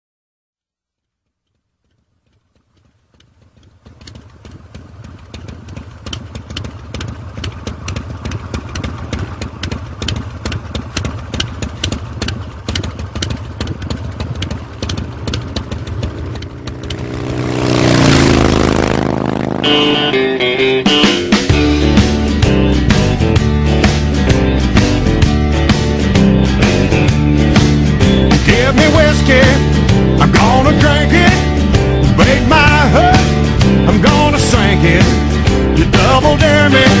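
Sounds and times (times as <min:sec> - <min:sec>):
rapid uneven ticking clatter: 0:01.0 - 0:17.6
motorcycle engine idling and revving: 0:01.1 - 0:37.0.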